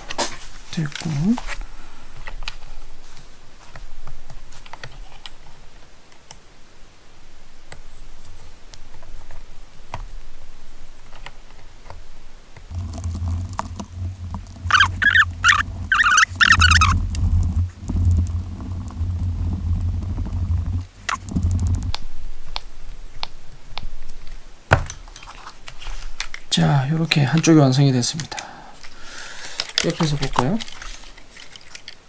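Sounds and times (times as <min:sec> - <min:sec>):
steady low hum: 0:06.6 - 0:24.7
loud squeaky bursts: 0:14.5 - 0:17.8
small plastic and metal parts clicking: 0:23.8 - 0:32.0.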